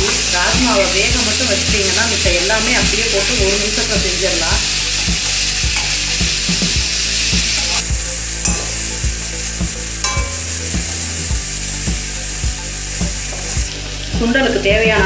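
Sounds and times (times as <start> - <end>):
beans sizzling in a pan: 0.0 - 15.0
steel spoon scraping a pan: 3.6 - 12.3.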